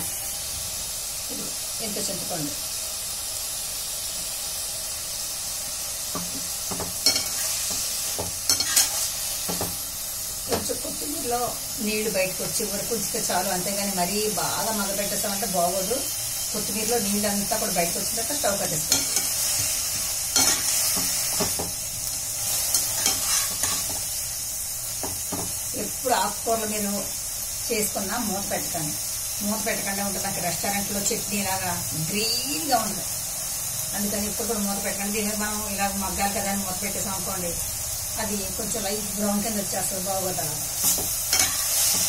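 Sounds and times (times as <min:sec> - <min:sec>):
leaves sizzling in hot oil: 0:00.0 - 0:42.0
metal spatula scraping pan: 0:08.5 - 0:09.1, 0:22.6 - 0:24.0, 0:40.8 - 0:42.0.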